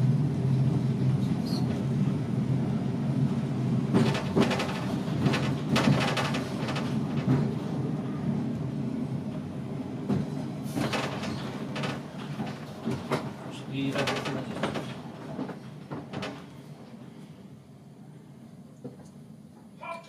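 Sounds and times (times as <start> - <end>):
tram low hum: 0.0 - 19.8
tram wheels clattering over rail junction: 3.5 - 17.0.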